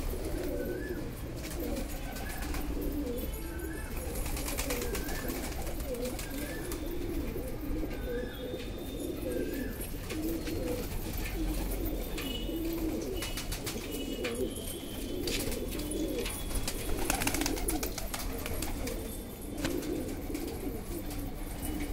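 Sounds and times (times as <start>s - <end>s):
pigeons cooing: 0.0s - 21.9s.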